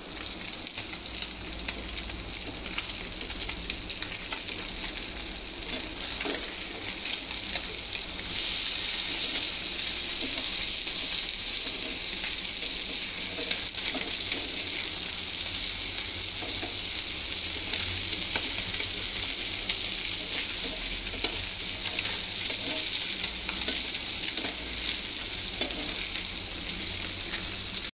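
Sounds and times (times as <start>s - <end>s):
fish frying in hot oil: 0.0s - 27.9s
spatula scraping and tapping: 11.5s - 14.9s, 16.4s - 16.9s, 20.2s - 24.7s, 25.5s - 26.2s.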